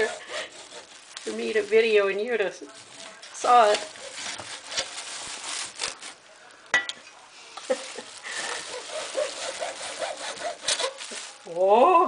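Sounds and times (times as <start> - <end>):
hacksaw rasping through plastic: 0.0 - 1.0, 8.4 - 11.2.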